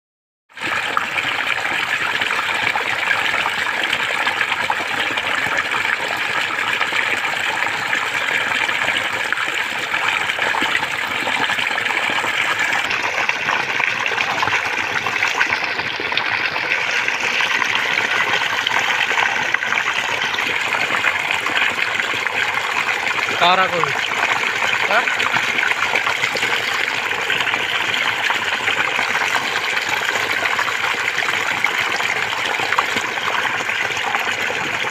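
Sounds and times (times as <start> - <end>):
water pouring into a pool: 0.5 - 34.9.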